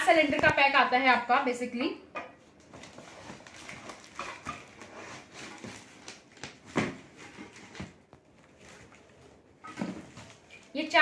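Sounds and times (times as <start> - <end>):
cardboard rustling and scraping: 2.7 - 10.7.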